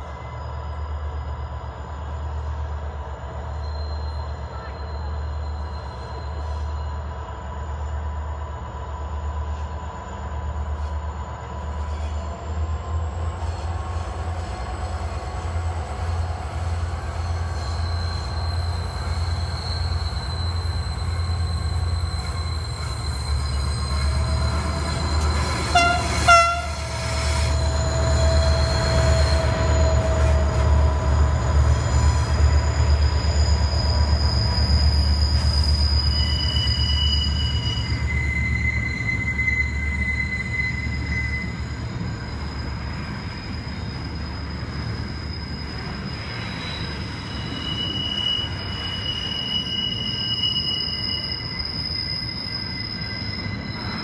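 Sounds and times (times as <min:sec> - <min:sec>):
diesel locomotives rumbling: 0:00.0 - 0:54.0
wheel squeal: 0:11.7 - 0:54.0
train horn blasts: 0:25.3 - 0:27.5.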